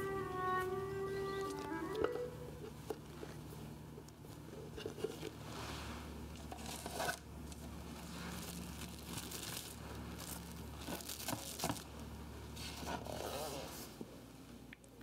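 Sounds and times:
cling film crinkling: 0:06.3 - 0:12.1
handling noise: 0:06.4 - 0:12.0.

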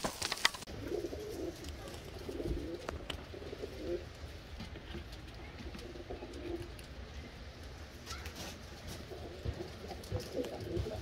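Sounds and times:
pigeons cooing: 0:00.7 - 0:04.5, 0:05.2 - 0:07.4, 0:08.8 - 0:11.0.

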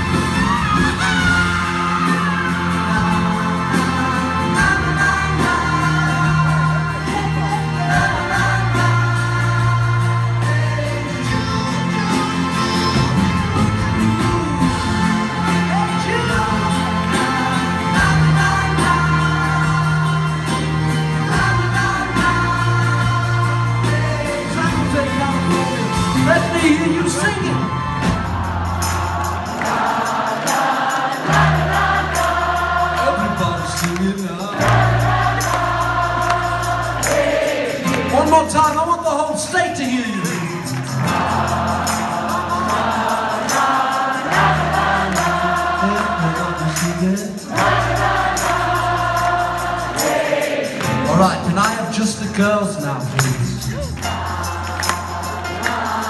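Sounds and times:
crowd singing along: 0:00.0 - 0:38.6, 0:40.2 - 0:52.0, 0:53.2 - 0:56.0
live rock band playing: 0:00.0 - 0:56.0.

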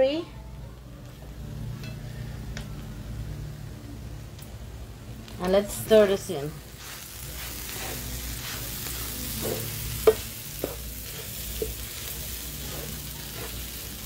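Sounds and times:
food sizzling: 0:04.9 - 0:14.0.

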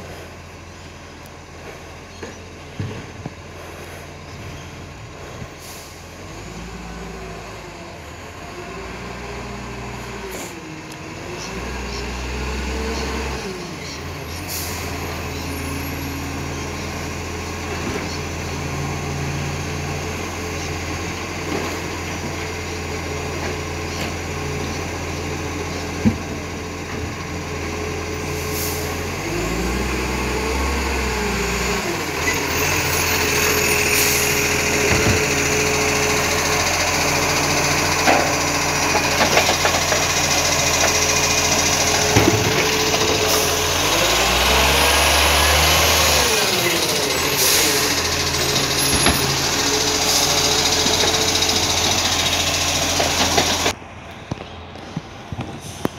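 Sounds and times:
truck diesel engine running: 0:00.0 - 0:55.9
air brake hiss: 0:05.6 - 0:06.1, 0:28.4 - 0:29.0
hydraulic arm whine: 0:28.3 - 0:53.8.

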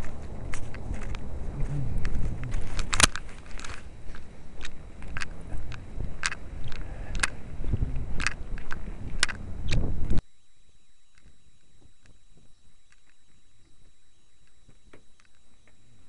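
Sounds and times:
footsteps crunching on snow: 0:00.0 - 0:06.8
wind rumble on microphone: 0:00.0 - 0:10.2
camera handling noise: 0:02.0 - 0:07.4.

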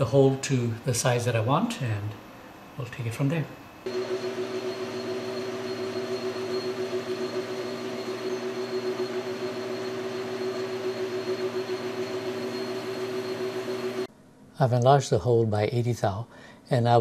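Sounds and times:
metal lathe humming: 0:03.9 - 0:14.1.

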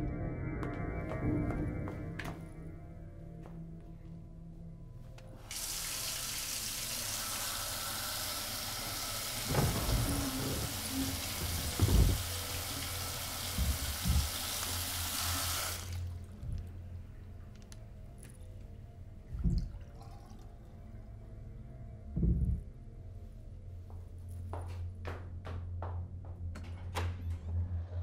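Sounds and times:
water running into sink: 0:05.5 - 0:16.0
dull low thumps: 0:09.5 - 0:12.5, 0:13.5 - 0:14.6, 0:22.0 - 0:23.0.

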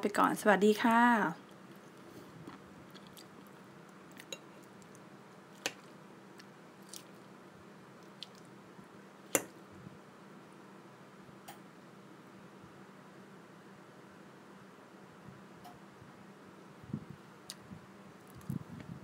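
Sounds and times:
squishing of salad: 0:01.4 - 0:08.7.

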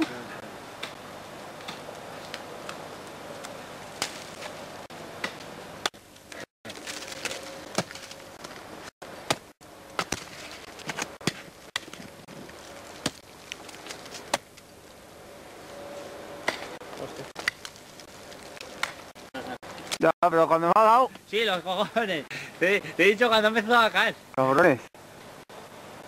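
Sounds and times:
ice axe striking ice: 0:04.0 - 0:04.5, 0:06.7 - 0:08.6, 0:09.3 - 0:12.1, 0:12.8 - 0:14.5, 0:17.4 - 0:18.0.

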